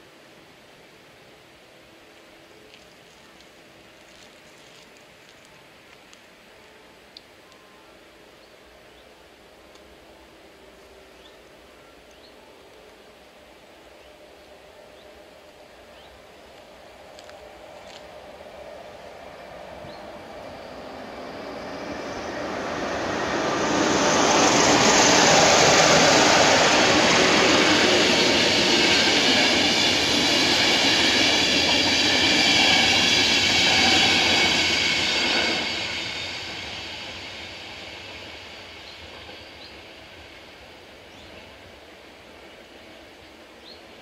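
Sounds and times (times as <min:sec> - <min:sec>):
train wheels on rails: 0:02.1 - 0:06.5, 0:14.4 - 0:44.0.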